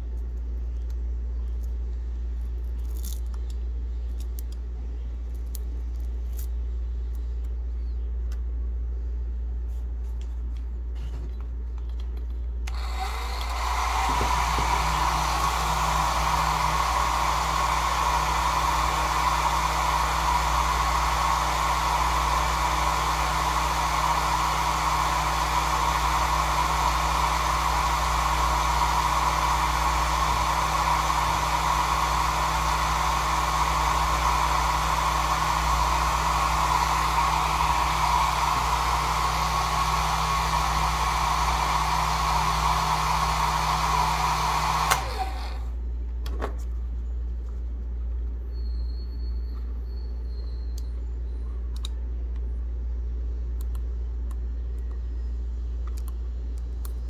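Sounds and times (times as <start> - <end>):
hair dryer running: 12.7 - 45.8.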